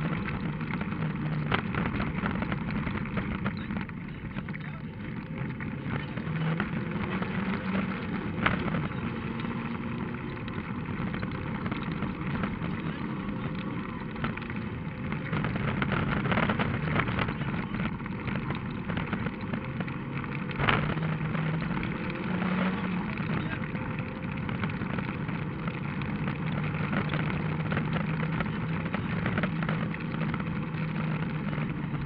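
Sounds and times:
rally car engine revving: 0:00.0 - 0:32.0
tyres rushing on gravel: 0:00.0 - 0:32.0.

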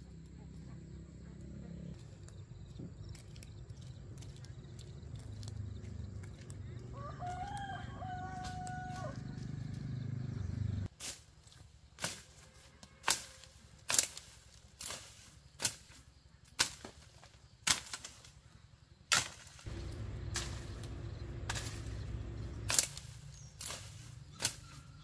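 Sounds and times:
machete chopping brush: 0:10.9 - 0:11.4, 0:12.0 - 0:18.4, 0:19.1 - 0:25.0
low steady rumble: 0:19.7 - 0:24.3.

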